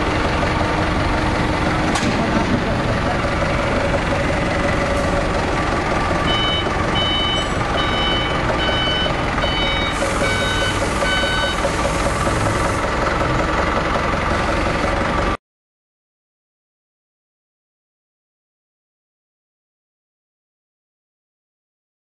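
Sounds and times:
forklift engine running: 0.0s - 15.4s
reversing alarm beeps: 6.3s - 11.7s.

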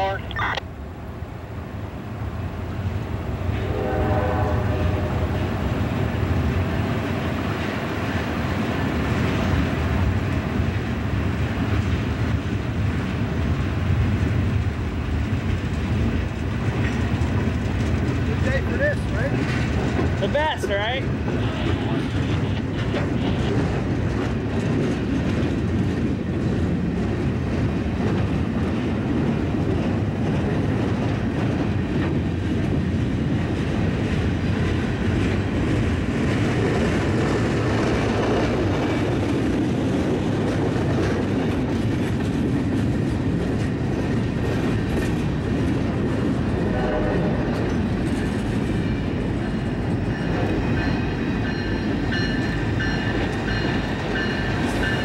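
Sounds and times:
diesel locomotive pitched hum: 0.0s - 55.0s
freight cars rumbling: 0.0s - 55.0s
train wheels clicking over rail joints: 5.7s - 46.6s.

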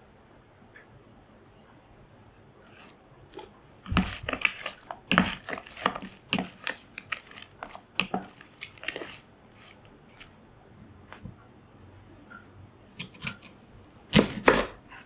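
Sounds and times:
spoon stirring shrimp in plastic bowl: 2.6s - 10.4s.

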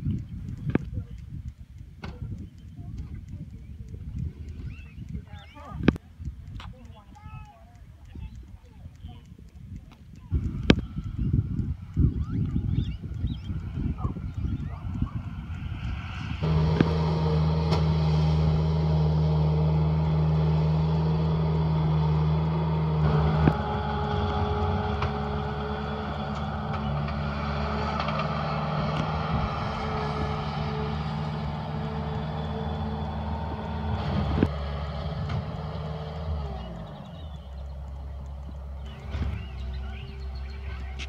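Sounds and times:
diesel engine running: 10.3s - 41.0s.

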